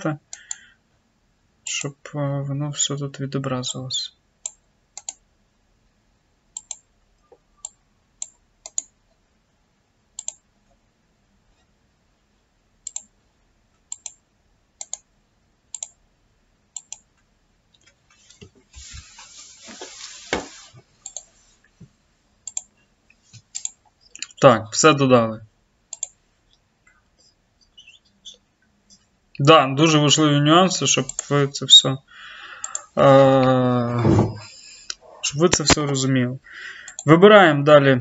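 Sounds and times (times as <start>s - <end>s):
computer mouse clicks: 4.4s - 5.2s, 6.6s - 9.0s, 10.2s - 10.4s, 12.8s - 13.1s, 13.9s - 14.2s, 14.8s - 15.1s, 15.7s - 16.0s, 16.8s - 17.1s, 21.0s - 21.3s, 22.4s - 22.8s, 23.4s - 24.4s, 25.9s - 26.2s, 32.6s - 32.9s, 36.9s - 37.1s
rustling: 18.0s - 21.8s
thump: 34.0s - 34.4s.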